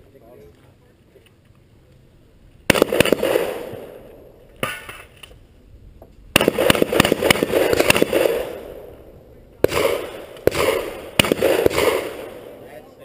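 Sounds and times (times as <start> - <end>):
gunshots with echo: 2.7 - 5.0, 6.3 - 12.9.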